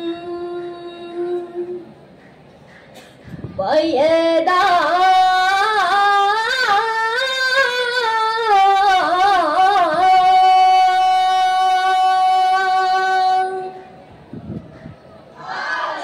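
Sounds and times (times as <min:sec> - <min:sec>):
boy singing unaccompanied: 0:00.0 - 0:01.9, 0:03.6 - 0:13.8.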